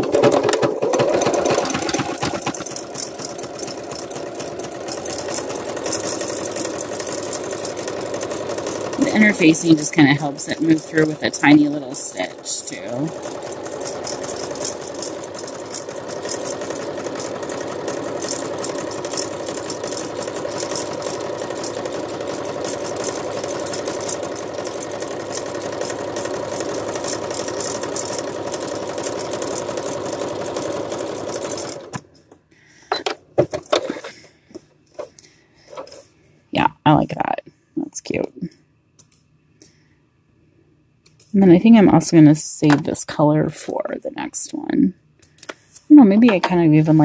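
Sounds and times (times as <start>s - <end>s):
sewing machine stitching: 0.0s - 32.2s.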